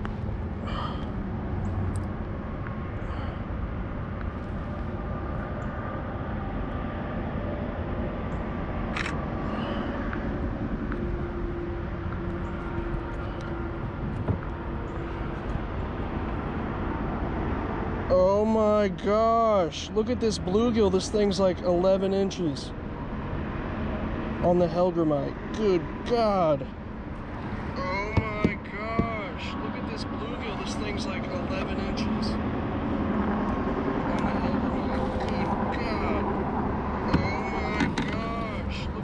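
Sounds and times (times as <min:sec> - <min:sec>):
low outdoor background noise: 0:00.0 - 0:39.0.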